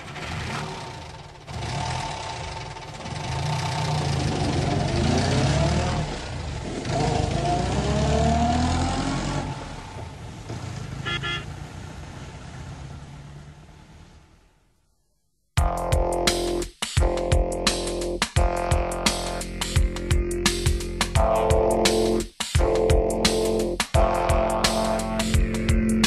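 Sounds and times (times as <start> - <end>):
motor vehicle speeding up: 0.0 - 14.4.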